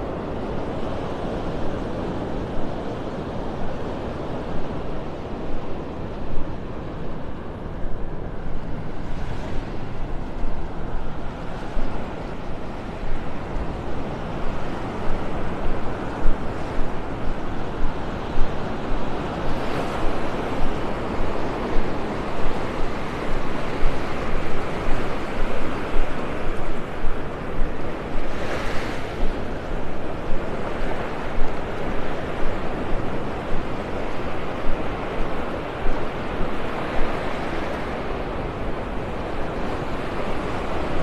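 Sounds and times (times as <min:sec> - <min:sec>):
wind rumbling on microphone: 0:00.0 - 0:41.0
small waves breaking on beach: 0:08.2 - 0:41.0.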